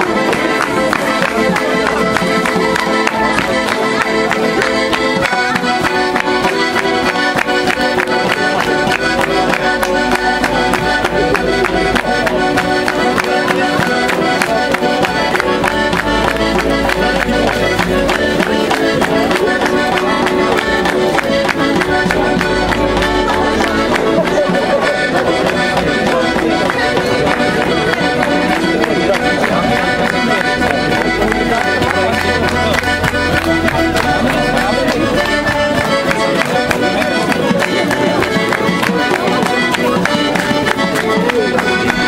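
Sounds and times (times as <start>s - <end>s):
accordion folk dance music: 0.0s - 42.0s.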